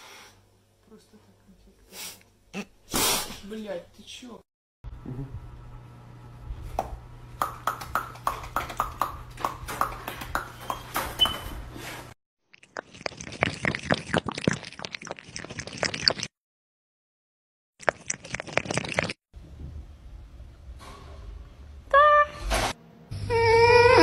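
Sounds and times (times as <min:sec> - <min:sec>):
steady low hum: 0:04.9 - 0:07.6.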